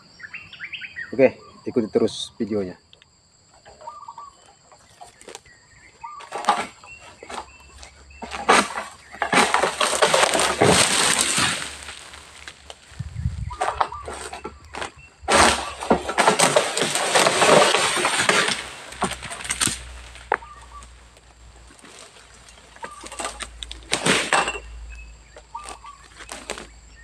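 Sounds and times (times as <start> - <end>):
palm fronds rustling and crashing: 6.0 - 27.0.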